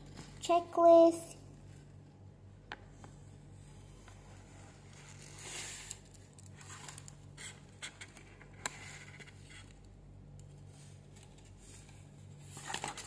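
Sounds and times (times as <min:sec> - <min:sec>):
paper rustling and crinkling: 0:10.8 - 0:13.0.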